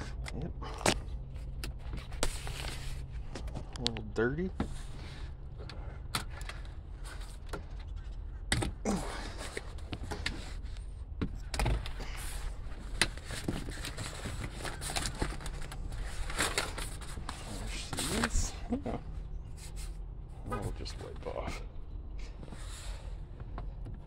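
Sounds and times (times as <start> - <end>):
steady low rumble: 0.0 - 24.0
vinyl cover rustling: 11.8 - 18.5.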